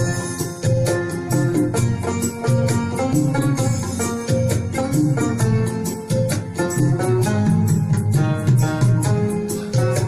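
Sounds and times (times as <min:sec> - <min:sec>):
instrumental film music: 0:00.0 - 0:10.0.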